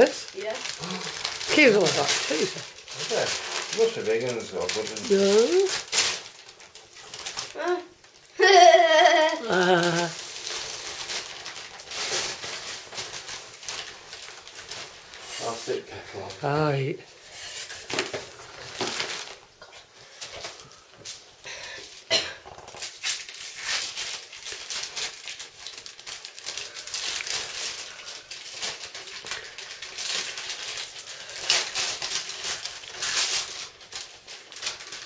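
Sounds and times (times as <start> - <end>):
wrapping paper crinkling and ripping: 0.0 - 35.0.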